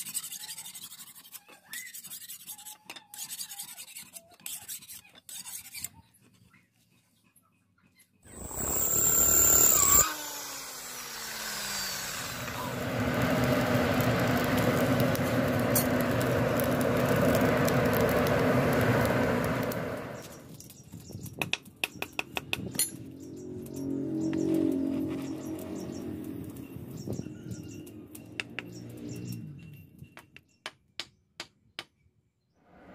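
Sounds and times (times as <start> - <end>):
forge air rushing hum: 8.3 - 10.0, 11.3 - 20.4
sharp clicks and ticks: 8.3 - 10.0
power tool whining: 8.3 - 20.4.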